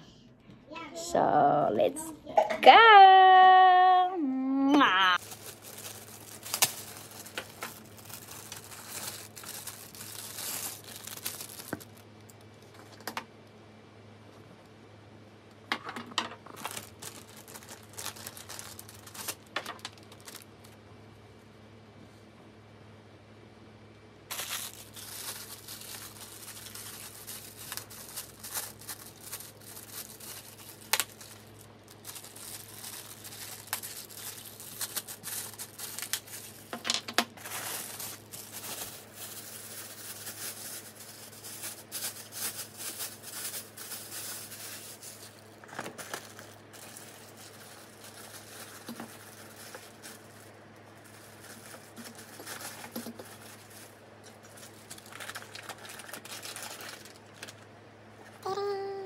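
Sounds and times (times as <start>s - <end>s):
steady low hum: 0.0s - 59.0s
plastic bags crinkling: 5.1s - 13.0s, 15.9s - 20.8s, 24.3s - 57.7s.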